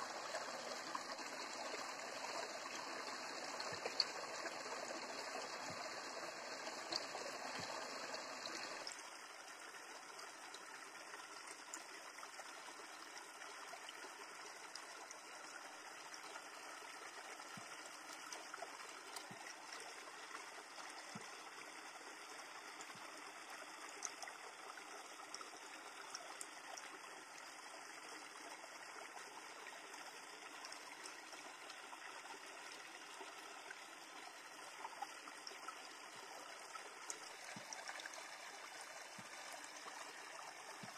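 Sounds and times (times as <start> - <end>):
river flowing over rocks: 0.0 - 8.8.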